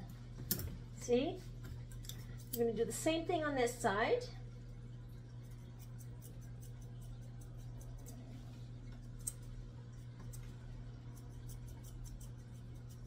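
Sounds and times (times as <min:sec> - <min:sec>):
steady low hum: 0:00.0 - 0:13.0
grooming shears snipping: 0:09.0 - 0:10.5.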